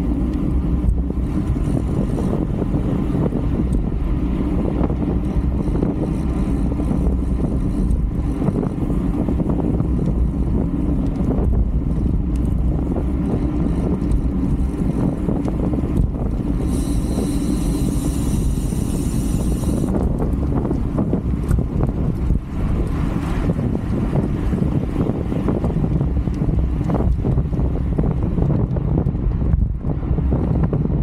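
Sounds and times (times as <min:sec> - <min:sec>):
wind rushing over microphone: 0:00.0 - 0:31.0.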